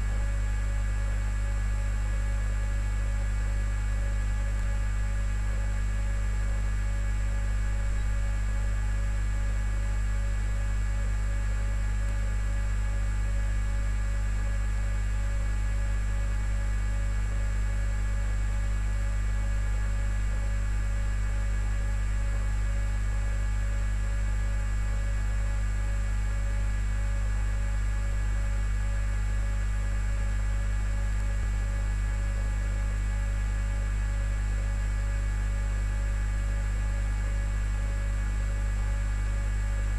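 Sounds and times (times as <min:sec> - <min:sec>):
low electrical hum: 0:00.0 - 0:39.9.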